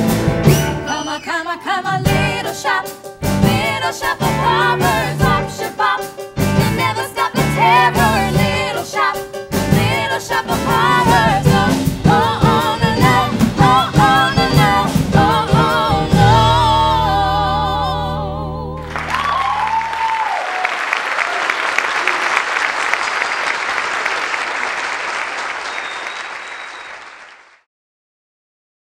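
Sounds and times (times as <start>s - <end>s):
cast singing with band: 0.5s - 18.9s
audience applause and cheer: 18.8s - 27.7s.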